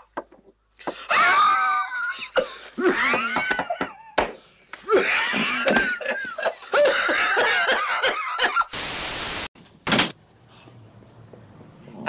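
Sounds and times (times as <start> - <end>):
static-like hiss burst: 8.7 - 9.6.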